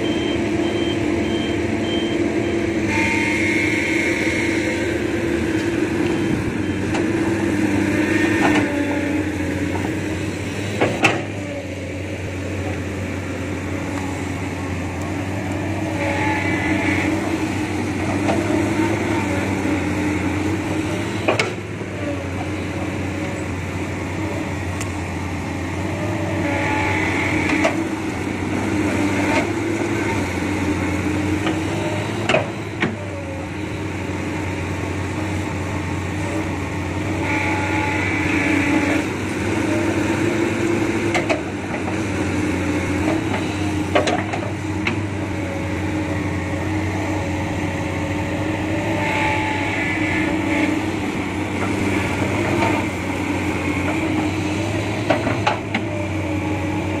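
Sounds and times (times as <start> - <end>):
high-pitched hydraulic whine: 0.0 - 23.6, 42.8 - 57.0
excavator diesel engine running: 0.0 - 57.0.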